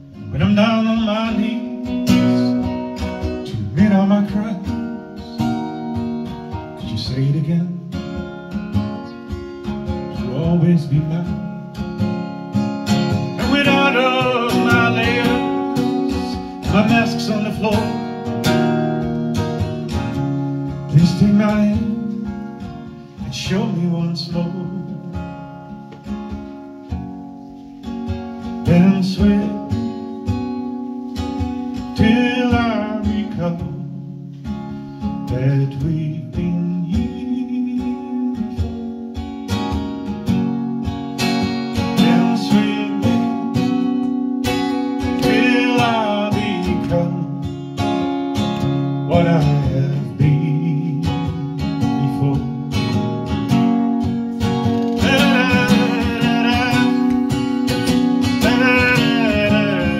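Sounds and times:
acoustic guitar strumming: 0.0 - 59.9
person singing: 13.3 - 18.2, 54.9 - 59.9.

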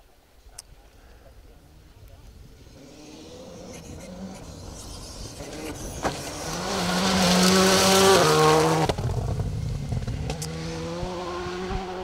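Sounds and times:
rally car engine revving: 2.4 - 12.0.

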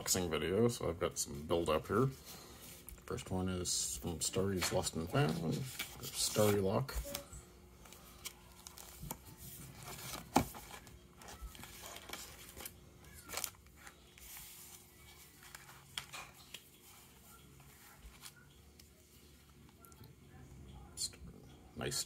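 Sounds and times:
paper and plastic rustling: 3.8 - 19.8.

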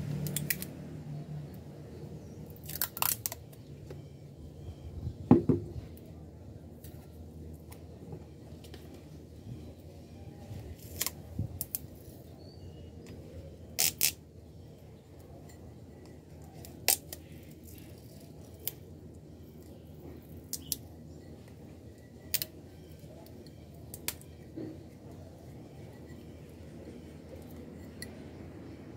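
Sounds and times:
plastic sheet and tape clicking: 0.2 - 0.7, 13.8 - 14.2.

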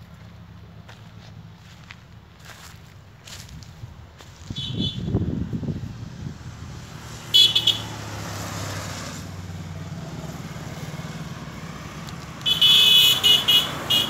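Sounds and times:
vehicle horn honking: 4.5 - 5.2, 7.3 - 8.0, 12.4 - 14.0
vehicle engine passing: 5.1 - 14.0.

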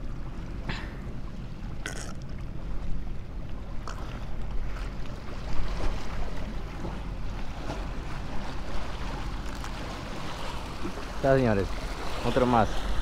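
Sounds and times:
sea water washing against rocks: 1.8 - 2.3.

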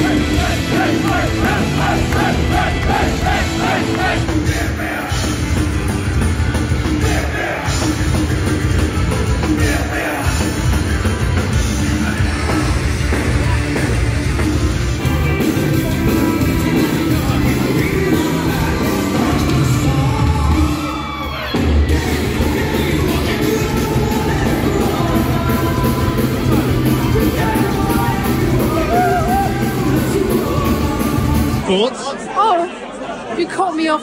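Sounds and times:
distorted electric guitars: 0.0 - 31.6
bass: 0.0 - 31.7
drums: 0.0 - 31.8
person singing: 13.8 - 21.3, 21.9 - 31.6.

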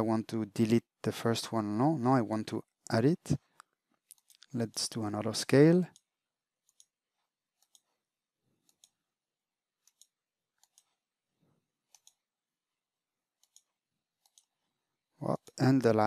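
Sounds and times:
faint mouse clicks: 7.6 - 7.9, 8.6 - 9.0, 11.9 - 12.2, 13.4 - 14.5.

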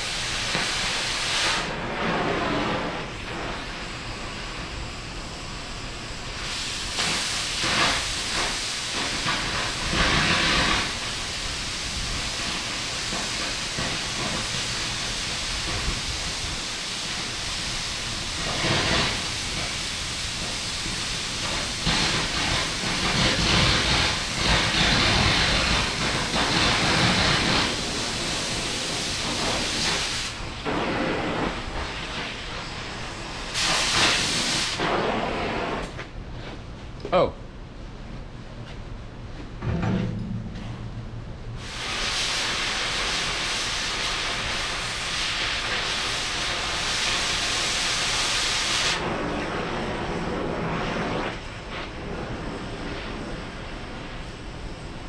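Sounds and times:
cutting torch hissing: 0.0 - 36.0, 41.6 - 54.5
flame burning: 0.0 - 36.6, 41.6 - 55.0.

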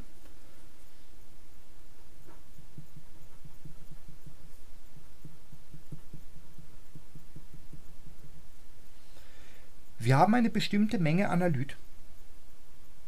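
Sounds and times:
low background hum: 0.0 - 13.0
marker writing on paper: 2.3 - 8.2.

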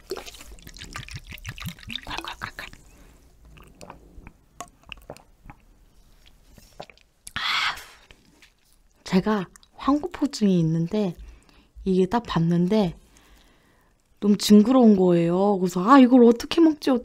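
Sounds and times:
liquid pouring into metal bowl: 0.0 - 2.8
sipping and swallowing: 0.0 - 7.4.

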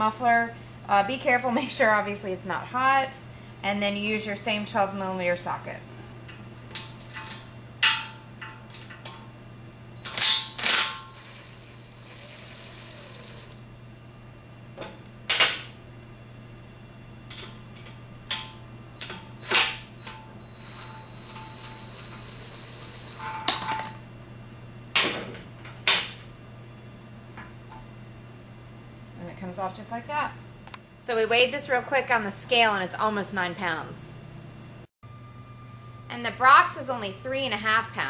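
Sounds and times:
faint steady whine: 8.4 - 14.4, 26.7 - 38.0.

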